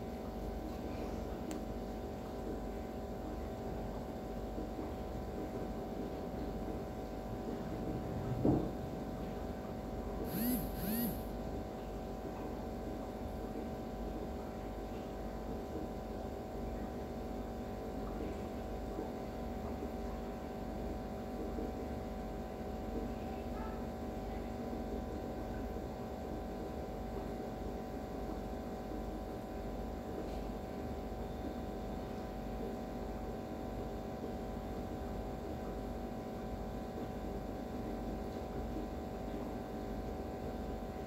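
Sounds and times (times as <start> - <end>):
steady electrical hum: 0.0 - 24.9.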